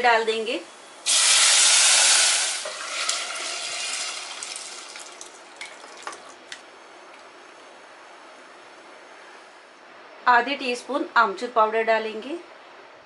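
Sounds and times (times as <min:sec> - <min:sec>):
butter sizzling in a pot: 0:01.0 - 0:05.2.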